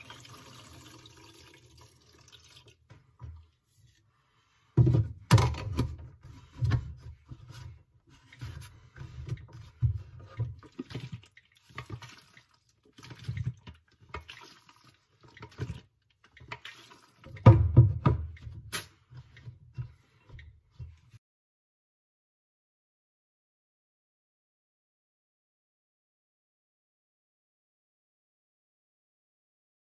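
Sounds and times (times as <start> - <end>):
developer sloshing in tank: 6.5 - 17.4.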